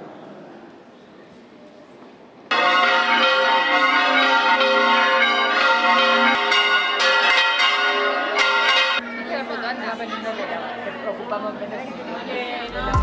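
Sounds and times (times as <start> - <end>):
church bells pealing: 2.5 - 10.4.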